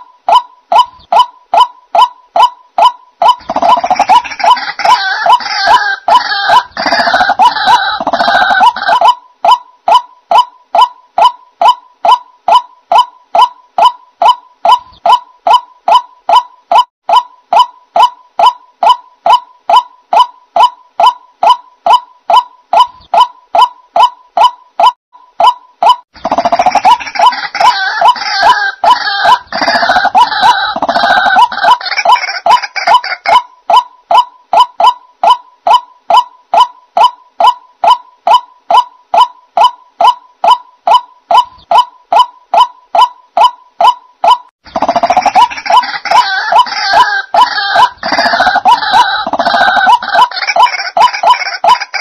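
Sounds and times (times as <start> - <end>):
bird harsh croaking calls: 0.0 - 16.9, 17.5 - 52.0.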